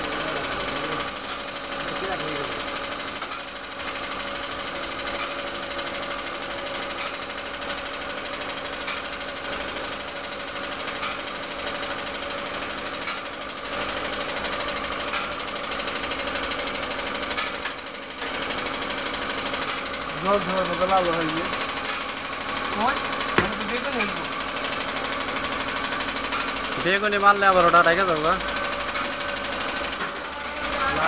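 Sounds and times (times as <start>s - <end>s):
air compressor running: 0.0s - 31.0s
spray gun hissing: 5.5s - 13.4s.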